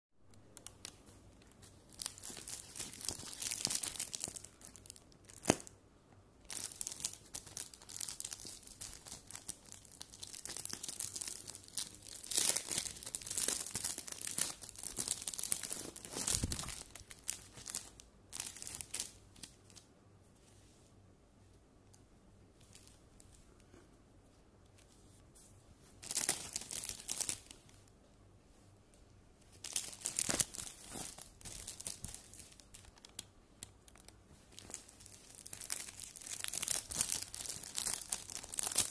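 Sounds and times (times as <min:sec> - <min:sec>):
plastic packaging crinkling: 0:00.4 - 0:05.7, 0:06.5 - 0:19.8, 0:26.0 - 0:27.7, 0:29.5 - 0:38.9.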